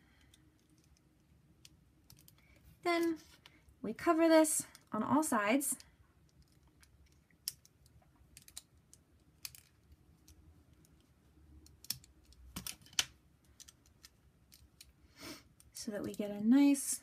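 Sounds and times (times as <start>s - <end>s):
plastic pieces clicking: 0.2s - 2.6s, 6.2s - 14.9s.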